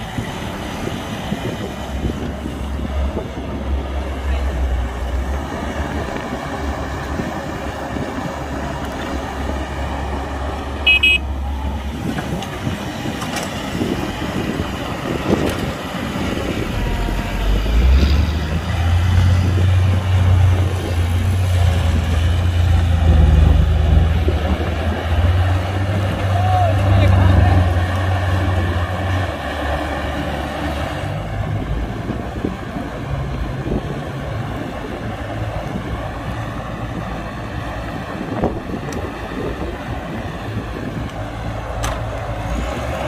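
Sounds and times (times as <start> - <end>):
diesel engines running: 0.0 - 43.0
short horn toot: 10.8 - 11.3.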